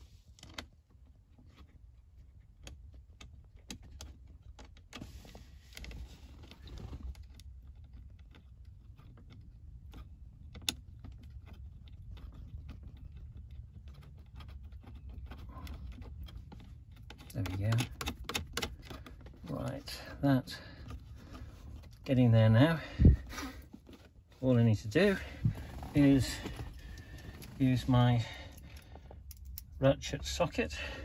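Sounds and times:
rustling: 0:23.1 - 0:29.8
small metal nuts clicking and rattling: 0:26.2 - 0:29.8.

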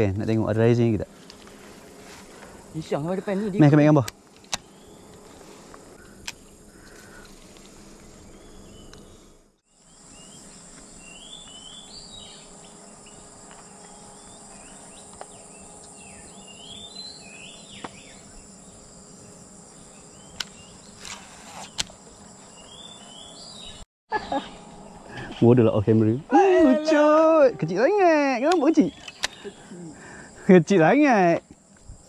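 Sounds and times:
insects droning: 0:00.0 - 0:32.0
sharp clicks: 0:28.4 - 0:29.4.

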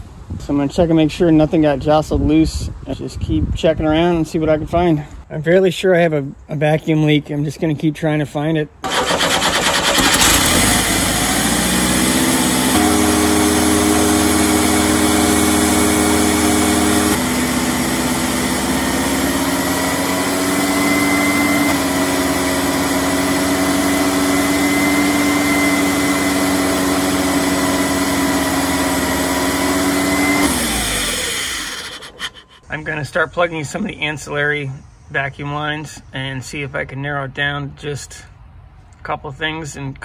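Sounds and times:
engine running at high idle: 0:08.8 - 0:32.7.

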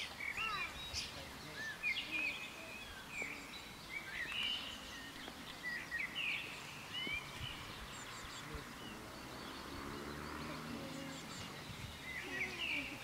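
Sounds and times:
songbirds chirping and singing: 0:00.0 - 0:13.0.

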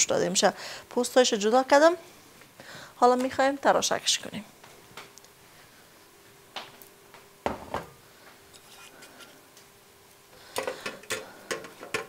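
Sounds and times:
dishes knocking on a counter: 0:07.4 - 0:07.9.

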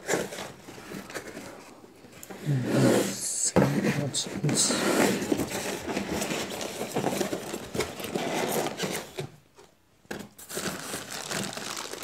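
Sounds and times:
packing rustle: 0:05.2 - 0:09.3, 0:10.2 - 0:12.0.

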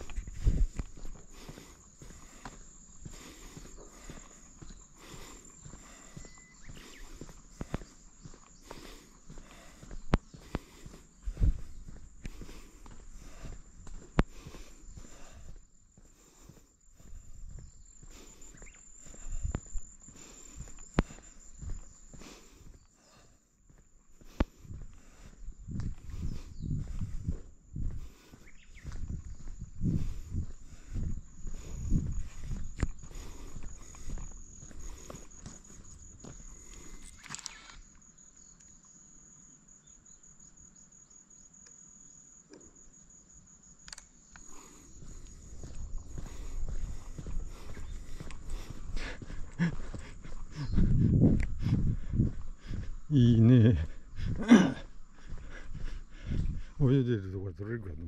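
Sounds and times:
high-pitched insect drone: 0:00.0 - 0:23.8, 0:24.6 - 0:57.8.

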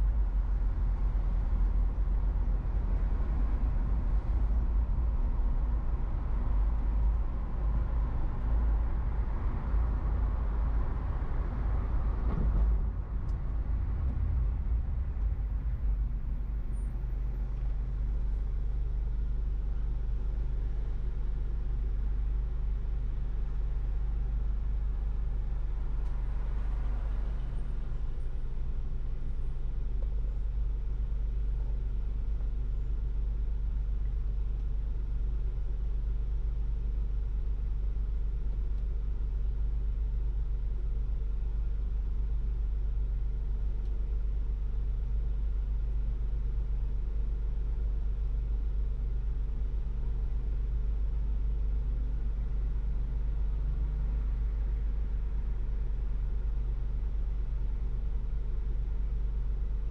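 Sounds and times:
passing traffic: 0:00.0 - 0:33.9
car engine and road noise: 0:00.0 - 0:59.9.

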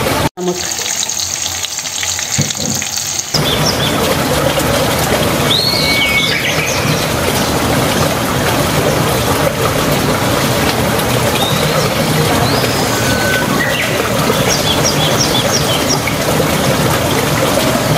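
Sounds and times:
oil sizzling in a wok: 0:00.4 - 0:03.4.

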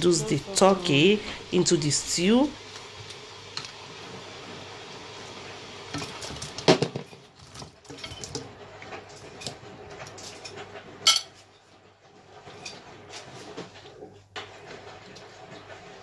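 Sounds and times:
tongs and bowl clinking on pot: 0:10.2 - 0:11.4.

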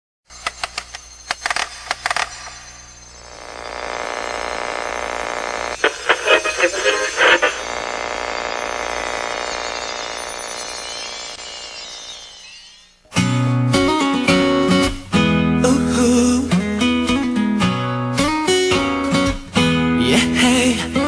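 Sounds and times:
radio static hiss: 0:03.1 - 0:12.5
voice through radio static: 0:05.0 - 0:09.4.

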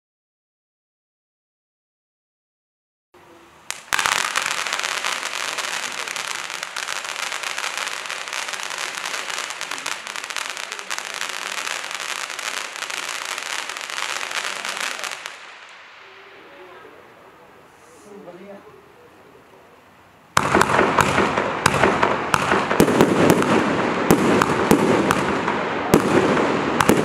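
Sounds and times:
firework fountain crackling hiss: 0:03.2 - 0:19.0, 0:19.9 - 0:27.0
sharp firework crack: 0:03.6 - 0:16.4, 0:20.3 - 0:27.0.

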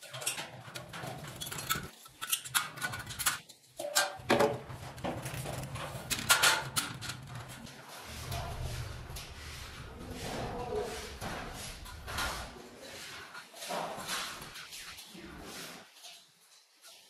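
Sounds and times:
metal bars clicking and clattering: 0:00.0 - 0:12.6.

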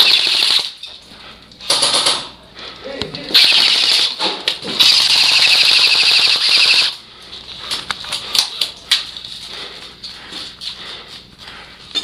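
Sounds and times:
airsoft rifle full-auto burst: 0:00.0 - 0:00.8, 0:03.3 - 0:04.2, 0:04.8 - 0:07.0.

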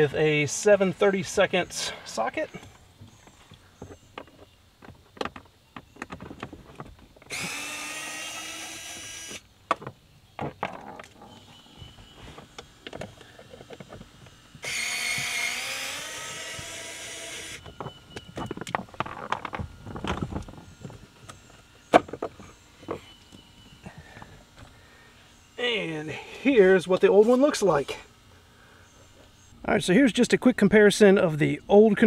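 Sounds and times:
power driver whining: 0:07.2 - 0:28.0
clicks and rattles of parts: 0:17.6 - 0:20.6.

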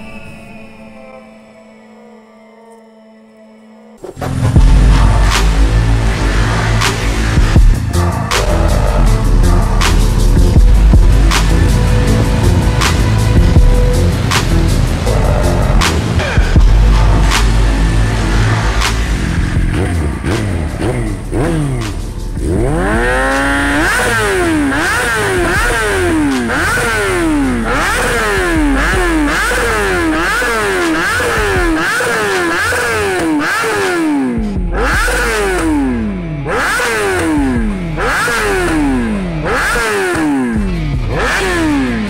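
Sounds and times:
motorcycle engine revving: 0:04.0 - 0:42.0
rhythmic electronic music: 0:04.4 - 0:42.0.

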